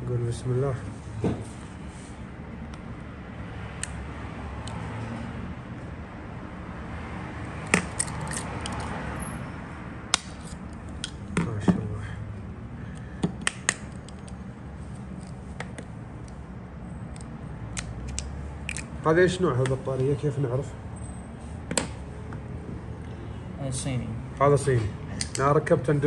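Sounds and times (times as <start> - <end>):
plastic casing clicking and snapping: 17.2 - 18.9.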